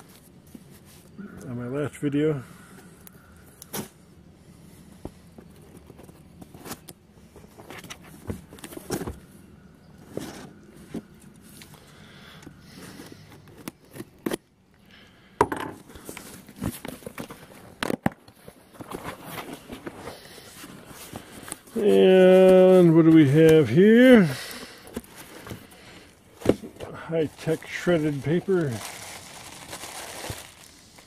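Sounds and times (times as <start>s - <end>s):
cardboard being handled: 10.0s - 11.2s, 16.0s - 31.0s.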